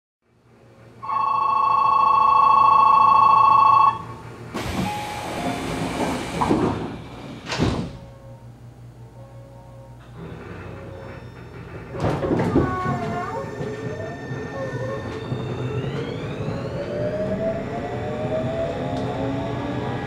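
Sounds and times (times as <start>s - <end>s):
ringing departure signal: 1.0s - 4.2s
train doors closing with hiss: 4.4s - 8.4s
doors shutting with thud: 4.6s - 8.1s.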